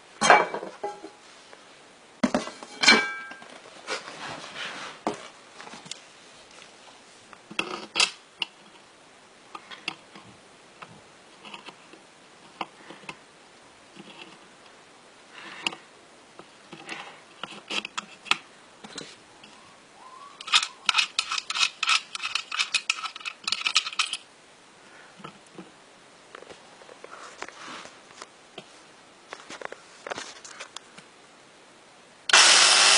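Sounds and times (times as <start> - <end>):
fast clicking and rattling: 20.4 - 24.2.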